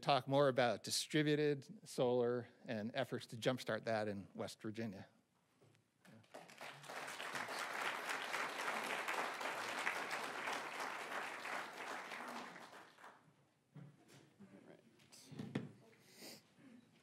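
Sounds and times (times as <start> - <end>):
audience applauding: 6.3 - 13.2.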